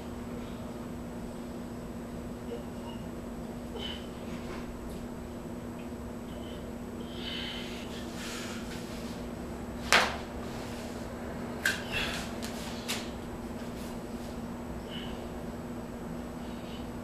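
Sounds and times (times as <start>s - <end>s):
steady low hum: 0.0s - 17.0s
rustling on exercise mat: 7.6s - 11.2s, 12.0s - 14.5s.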